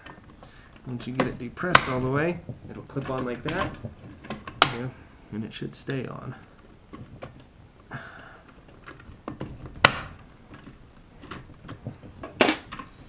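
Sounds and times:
metal lock clicks and knocks: 0:01.0 - 0:04.9.

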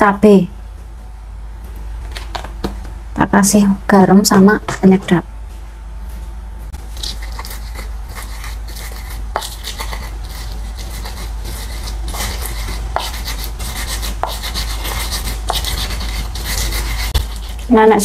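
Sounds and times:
pestle grinding in wooden mortar: 0:06.9 - 0:17.8.

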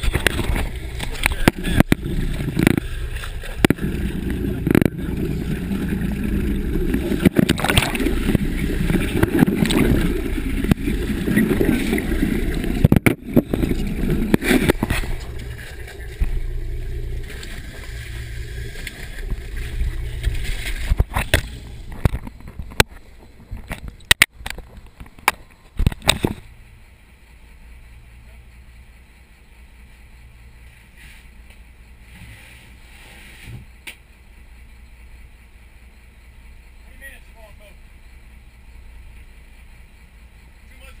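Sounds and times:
water sloshing and splashing: 0:00.0 - 0:26.5.

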